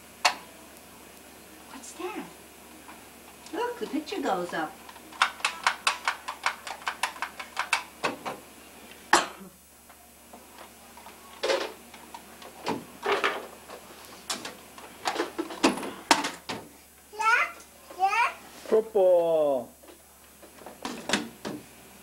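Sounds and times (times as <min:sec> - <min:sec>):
plastic toys clicking and knocking: 0:04.9 - 0:08.4
toys clattering in plastic box: 0:05.2 - 0:07.9.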